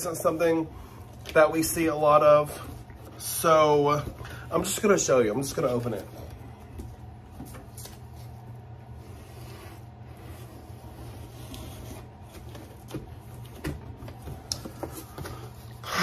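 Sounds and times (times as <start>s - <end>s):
low steady hum: 0.0s - 16.0s
cardboard scraping and rubbing: 8.1s - 15.5s.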